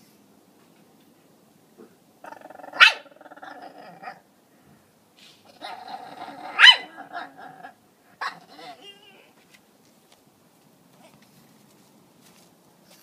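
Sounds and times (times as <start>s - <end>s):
dog barking sharply: 2.8s - 3.1s, 6.6s - 7.0s, 8.2s - 8.7s
dog whining: 5.5s - 9.0s.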